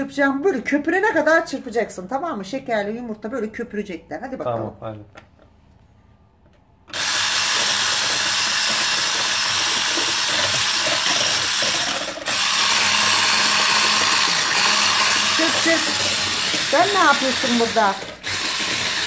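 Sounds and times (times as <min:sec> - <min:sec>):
electric hand mixer whisking: 0:06.9 - 0:19.0.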